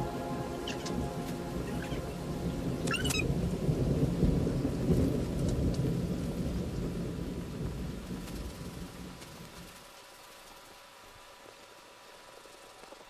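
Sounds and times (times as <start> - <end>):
rolling thunder: 0.0 - 9.7
steady rain: 0.0 - 13.0.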